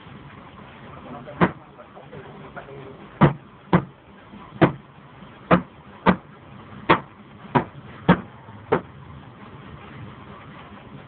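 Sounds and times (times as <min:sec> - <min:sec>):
sharp knocks: 0:03.2 - 0:03.9, 0:04.6 - 0:04.8, 0:05.5 - 0:06.3, 0:06.9 - 0:08.9.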